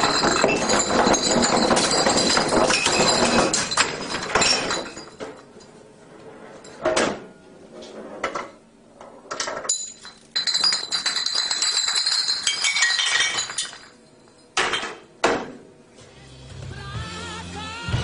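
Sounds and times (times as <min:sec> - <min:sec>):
glass bottle clinking on hard surface: 0:00.0 - 0:05.4, 0:09.7 - 0:14.9.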